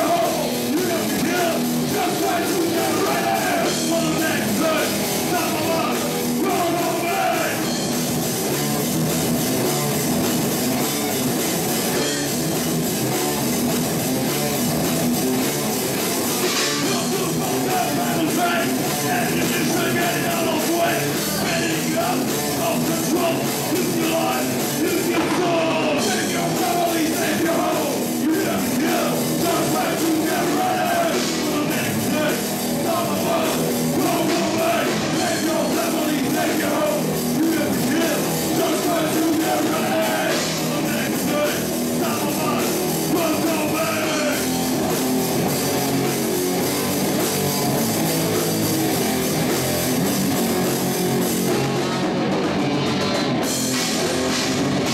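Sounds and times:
person singing: 0.0s - 7.8s, 16.6s - 44.5s
drum kit: 0.0s - 54.9s
electric guitars: 0.0s - 54.9s.

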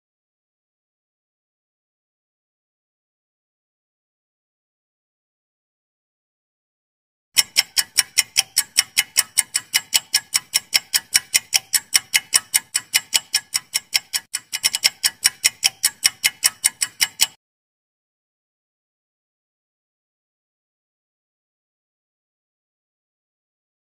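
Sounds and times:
rapid clock ticks: 7.4s - 17.4s.

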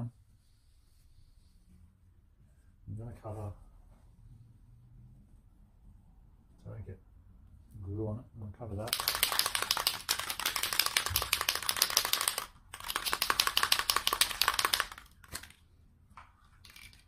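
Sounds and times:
aerosol can rattling when shaken: 8.9s - 15.6s, 16.5s - 17.0s.

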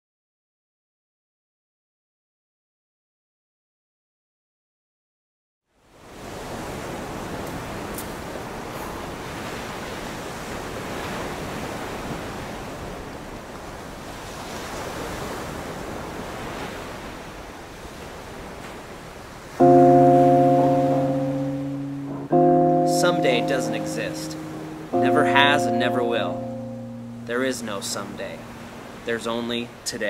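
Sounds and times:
ocean surf washing in: 6.0s - 30.0s
loud musical chord: 19.6s - 29.4s.

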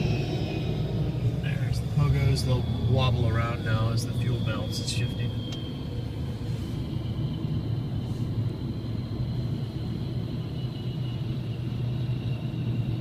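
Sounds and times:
car rumble from inside cabin: 0.0s - 10.1s
faint high whine: 0.0s - 13.0s.

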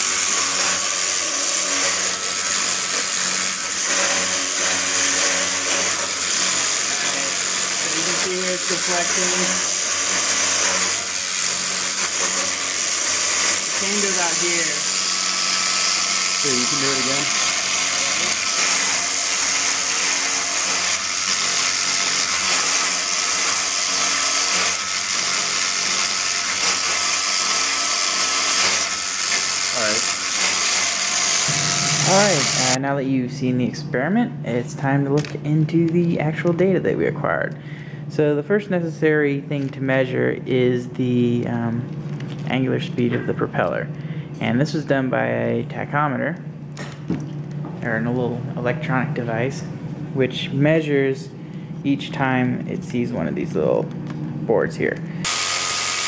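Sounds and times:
electric motor whirring hum: 0.0s - 32.9s, 48.9s - 56.0s.

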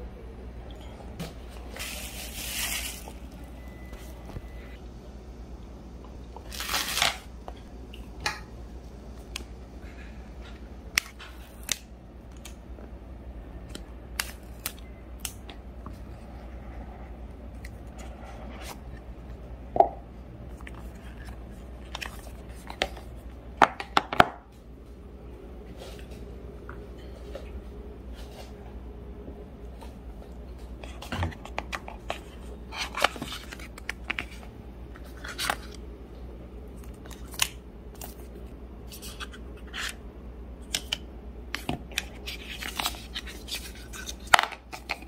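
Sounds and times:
packaging rustling: 1.7s - 3.6s
wrapping tearing: 1.8s - 3.2s, 6.5s - 7.3s.

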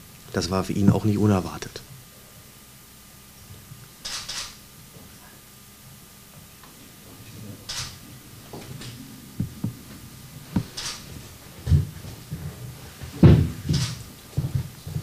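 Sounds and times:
faint low murmur: 4.8s - 15.0s
soft knocks: 8.5s - 10.7s, 11.6s - 15.0s.

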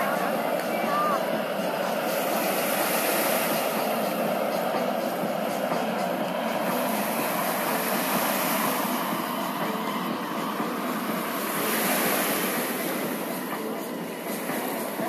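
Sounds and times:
jet engine roar with hiss: 0.0s - 15.0s.

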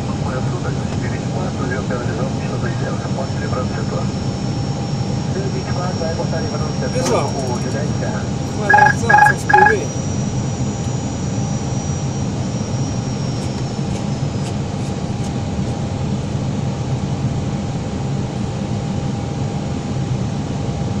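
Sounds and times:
aircraft engines and airflow: 0.0s - 21.0s
faint steady tone: 8.4s - 10.0s.

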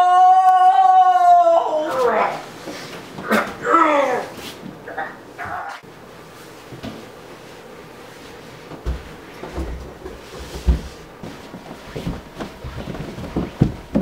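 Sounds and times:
body thumping down carpeted stairs: 8.6s - 14.0s.

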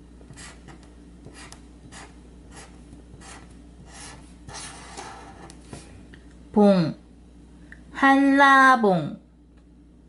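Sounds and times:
pen writing on paper: 0.3s - 5.6s.

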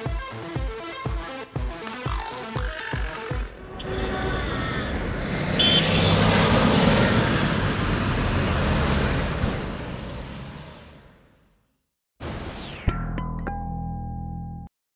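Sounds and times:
car engine and road noise: 3.5s - 11.8s.

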